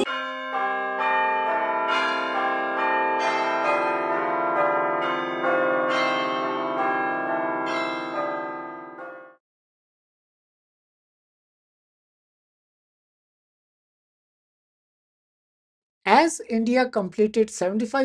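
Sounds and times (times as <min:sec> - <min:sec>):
bell-like chimes: 0:00.0 - 0:09.4.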